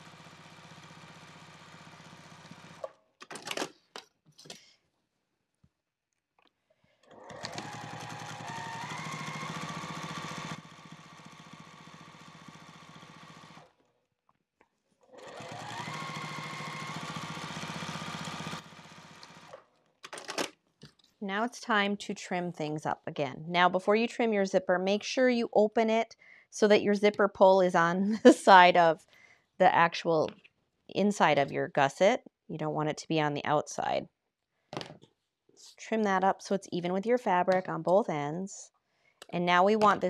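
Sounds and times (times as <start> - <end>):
sewing machine motor whine: 0.0 - 2.9, 7.1 - 13.7, 15.2 - 19.6.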